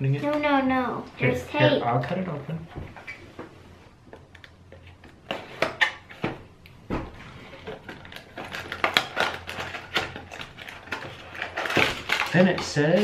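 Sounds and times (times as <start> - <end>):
plastic wrapping crinkling: 7.4 - 13.0.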